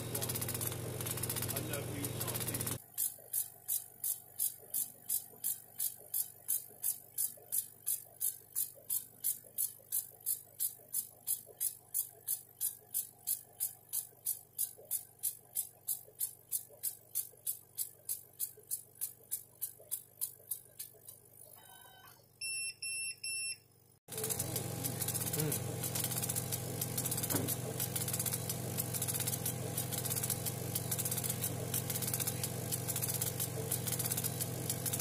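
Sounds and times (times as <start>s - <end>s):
laser engraver head swishing ticks: 0.2s - 21.4s, 24.1s - 35.0s
steady low hum: 24.1s - 35.0s.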